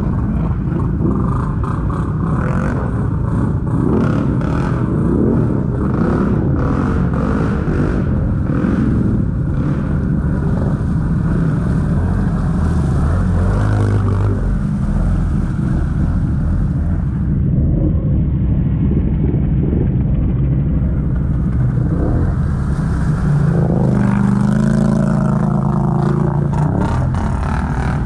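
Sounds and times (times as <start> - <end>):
atv engines revving: 0.0 - 18.4, 19.0 - 28.0
water splashing and churning: 9.0 - 17.8, 20.1 - 28.0.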